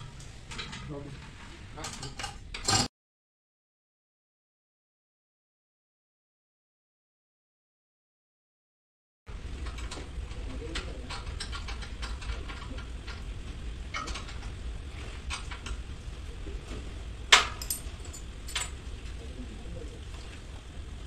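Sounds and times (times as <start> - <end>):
steady low hum: 9.3 - 21.0
sharp metal clank: 17.3 - 18.7
metal tools clinking on steel: 17.3 - 18.8.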